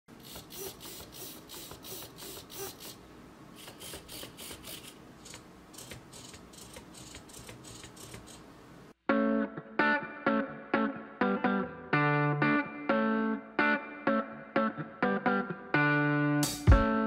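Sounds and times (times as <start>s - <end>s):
servos whirring: 0.1s - 8.5s.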